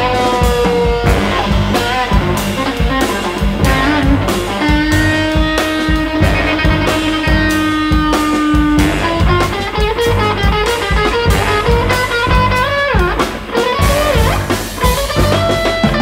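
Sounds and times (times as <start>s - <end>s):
electric guitar: 0.0s - 16.0s
live jazz band: 0.0s - 16.0s.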